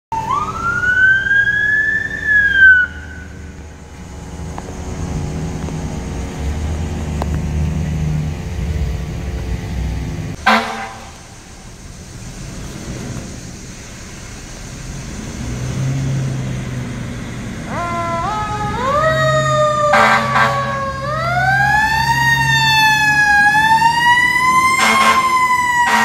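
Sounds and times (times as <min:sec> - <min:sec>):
siren wailing: 0:00.1 - 0:06.0, 0:17.6 - 0:26.0
vehicle engine rumbling: 0:00.1 - 0:26.0
loud horn blast: 0:08.8 - 0:11.4, 0:19.9 - 0:20.9, 0:24.8 - 0:26.0.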